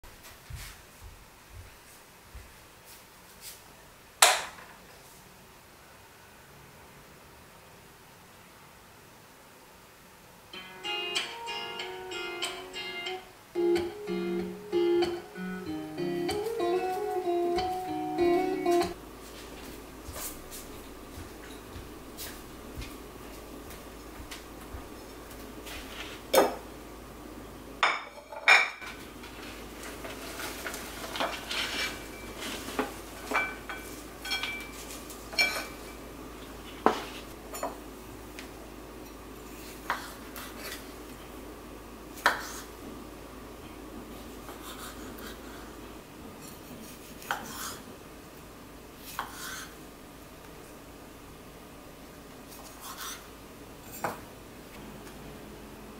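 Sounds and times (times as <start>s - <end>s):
dishes and utensils clinking: 30.0s - 36.0s.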